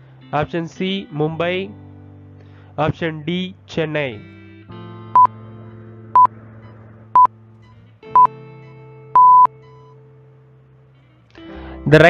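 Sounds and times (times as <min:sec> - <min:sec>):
soft background music: 0:00.0 - 0:12.0
countdown timer beeps: 0:09.2 - 0:09.5.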